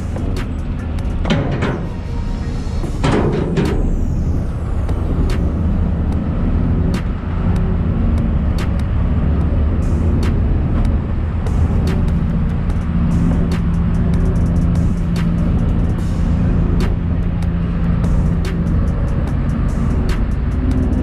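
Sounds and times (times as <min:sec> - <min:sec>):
motor vehicle engine rumbling: 0:00.0 - 0:21.0
sharp ticks: 0:04.9 - 0:21.0.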